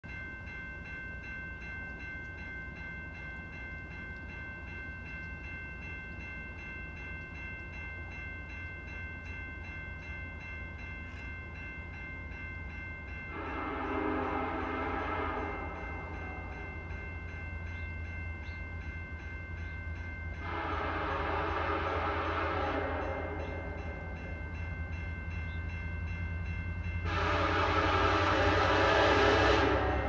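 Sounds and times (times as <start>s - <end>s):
crossing bell ringing: 0.0s - 30.0s
locomotive horn: 13.3s - 16.7s, 20.4s - 24.2s, 27.0s - 30.0s.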